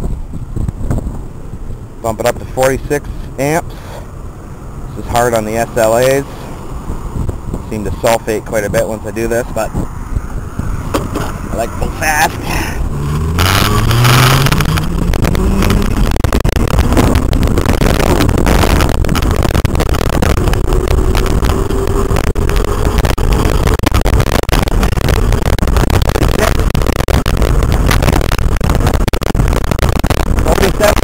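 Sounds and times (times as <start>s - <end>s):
wind noise on microphone: 0.0s - 31.0s
electric hub motor whining: 12.8s - 28.4s.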